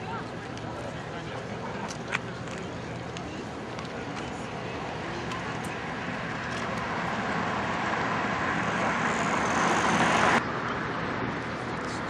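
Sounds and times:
city traffic: 0.0 - 12.0
car driving past: 5.8 - 10.4.

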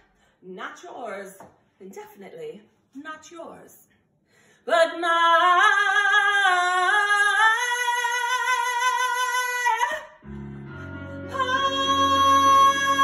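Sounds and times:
woman singing long held note: 10.7 - 13.0.

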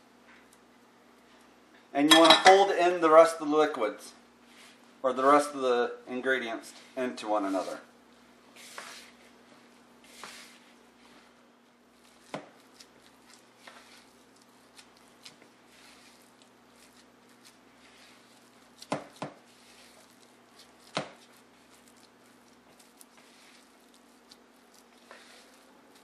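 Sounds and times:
spoon scraping dough in bowl: 8.5 - 9.3, 10.0 - 11.3, 12.0 - 26.0.

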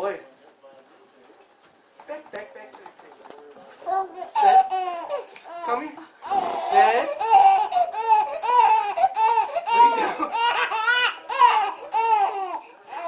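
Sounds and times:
baby laughing: 4.2 - 13.0.

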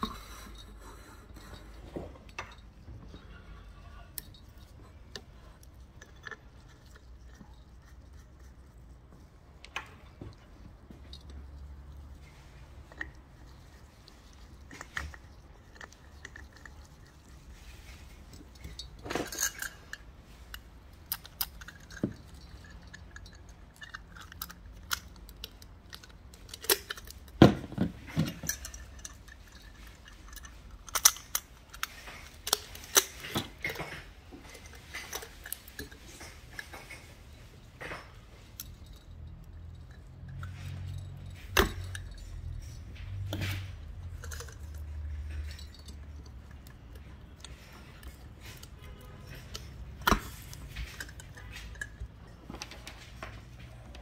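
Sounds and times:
metal and glass pieces clinking: 0.0 - 8.6, 9.8 - 53.6.

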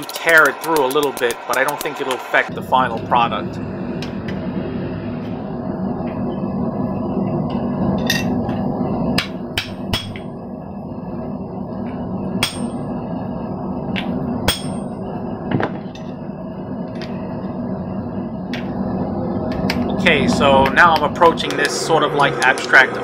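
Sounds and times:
hammer striking metal with ringing: 9.6 - 10.2, 12.4 - 12.8, 14.5 - 14.9.

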